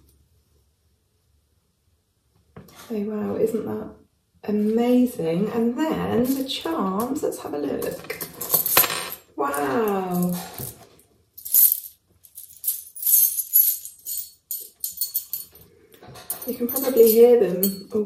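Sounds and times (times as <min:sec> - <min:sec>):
metal charms clinking: 0:11.4 - 0:15.6, 0:16.3 - 0:17.9.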